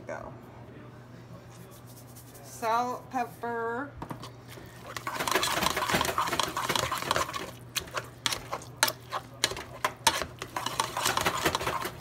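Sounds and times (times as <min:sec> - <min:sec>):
wet squishing of mashed vegetables: 0:04.2 - 0:12.0.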